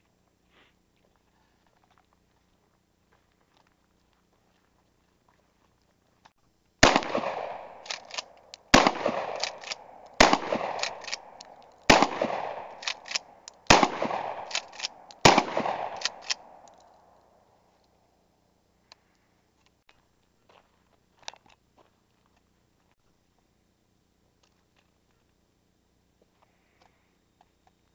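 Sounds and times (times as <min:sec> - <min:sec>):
shotgun shots: 0:06.8 - 0:16.6
shotgun pump racking clacks: 0:07.8 - 0:11.7, 0:12.7 - 0:13.6, 0:14.4 - 0:15.2, 0:15.9 - 0:16.9.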